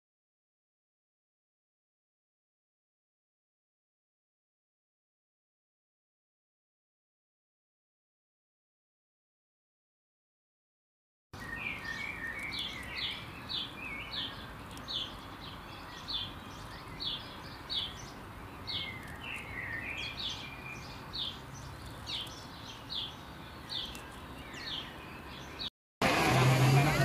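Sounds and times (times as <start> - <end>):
bird twittering: 11.4 - 25.7.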